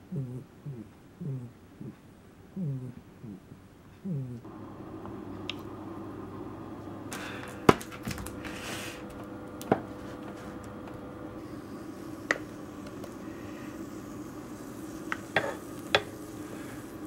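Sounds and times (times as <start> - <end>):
steady low hum: 0.0 - 17.0
scraping or stirring: 14.9 - 17.0.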